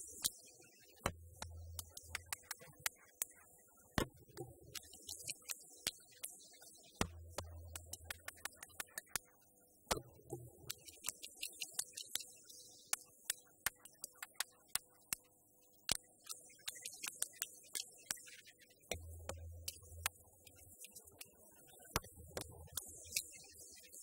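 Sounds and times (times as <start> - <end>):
hand percussion clicks: 1.0 - 3.4, 7.0 - 9.3.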